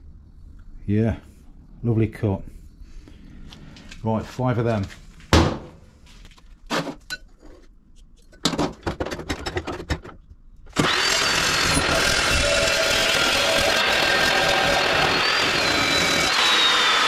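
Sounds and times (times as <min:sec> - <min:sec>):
chop saw motor whining: 0:10.7 - 0:17.0.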